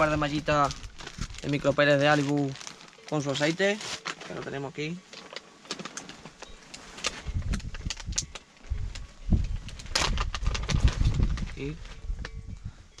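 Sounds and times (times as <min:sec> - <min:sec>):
plastic items clicking: 0:05.1 - 0:11.0.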